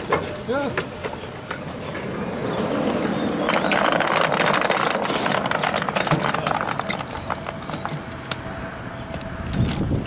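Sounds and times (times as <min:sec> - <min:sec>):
model train wheels rattling: 0:03.3 - 0:08.4.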